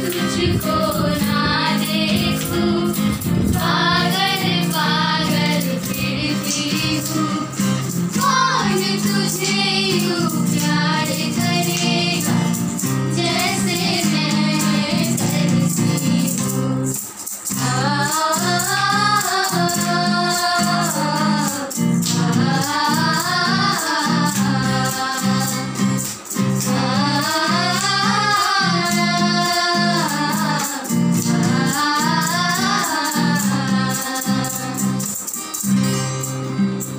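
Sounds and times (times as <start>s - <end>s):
women singing together: 0.0s - 35.4s
strummed acoustic guitar: 0.0s - 36.9s.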